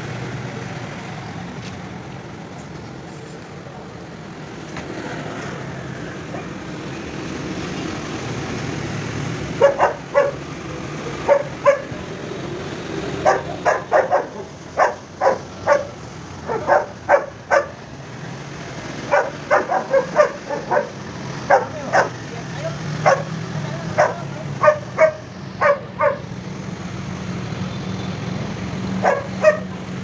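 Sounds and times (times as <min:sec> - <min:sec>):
street traffic: 0:00.0 - 0:30.0
dog barking: 0:09.6 - 0:10.4, 0:11.2 - 0:12.0, 0:13.2 - 0:17.8, 0:19.0 - 0:22.2, 0:23.0 - 0:23.3, 0:23.9 - 0:26.3, 0:29.0 - 0:29.8.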